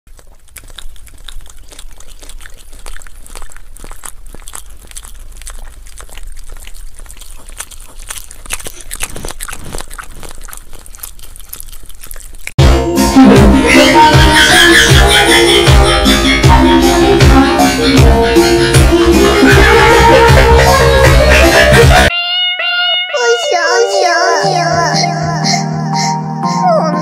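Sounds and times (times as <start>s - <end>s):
puppy chewing: 0.1s - 12.7s.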